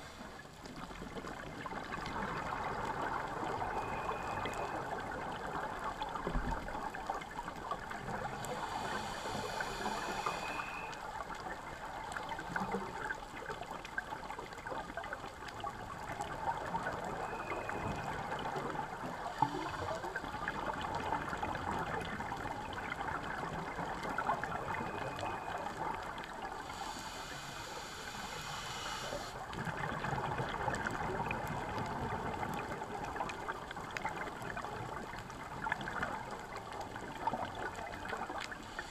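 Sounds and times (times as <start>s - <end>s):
bubbling trickling water: 0.4s - 26.7s, 29.4s - 38.9s
underwater crackling hiss: 2.7s - 5.4s, 7.6s - 13.1s, 16.3s - 31.2s, 37.0s - 38.9s.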